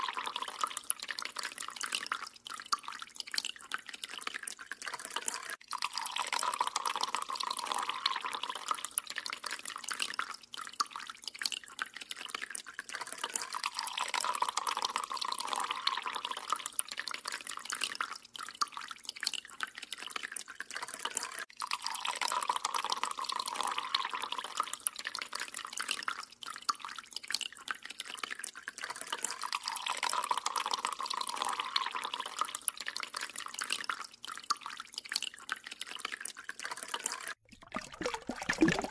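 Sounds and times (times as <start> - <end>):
tap water running into sink: 36.9 - 38.9.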